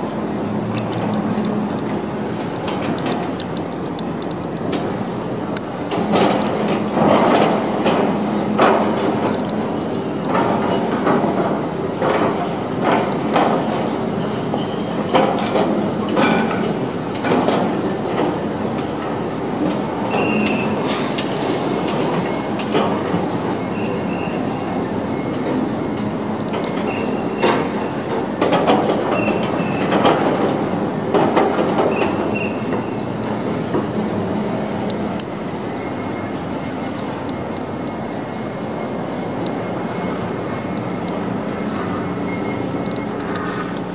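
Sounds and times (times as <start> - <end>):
crawler crane engine drone: 32.4 - 43.9.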